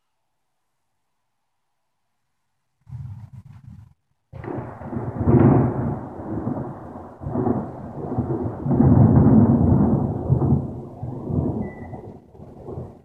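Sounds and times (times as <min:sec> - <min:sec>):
thunder rumbling: 0:02.8 - 0:13.0.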